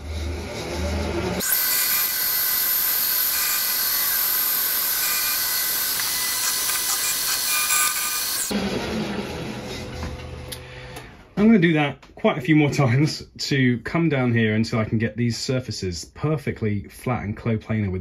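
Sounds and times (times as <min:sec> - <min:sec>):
milling cutter hissing: 0:00.1 - 0:08.5.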